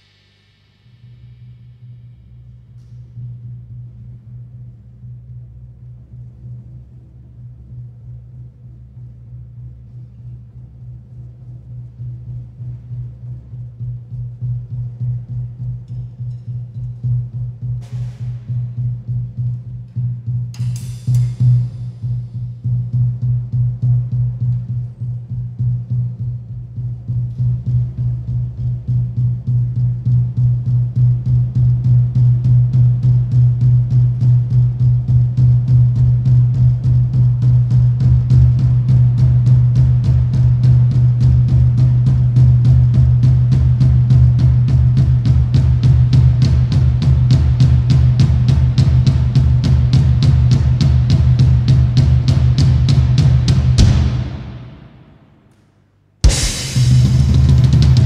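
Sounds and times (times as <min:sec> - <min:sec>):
cymbal wash: 0:00.0 - 0:05.5, 0:15.2 - 0:24.3, 0:56.2 - 0:58.0
drum kit playing fast pulse: 0:35.7 - 0:55.4, 0:56.2 - 0:58.0.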